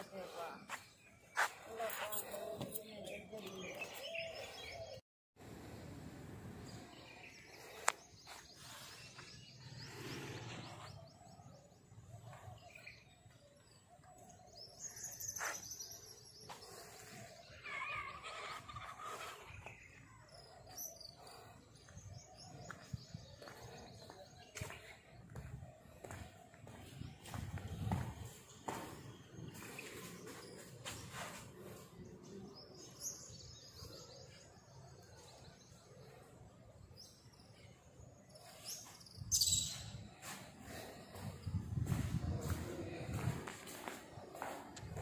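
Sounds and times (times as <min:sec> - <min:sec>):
birds chirping: 0:00.0 - 0:05.0, 0:06.6 - 0:45.0
faint outdoor background noise: 0:00.0 - 0:45.0.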